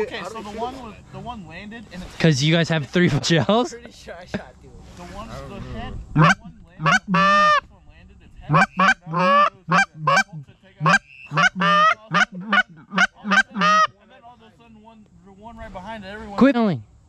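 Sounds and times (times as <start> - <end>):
geese honking and clucking: 5.6 - 7.6, 8.5 - 14.0.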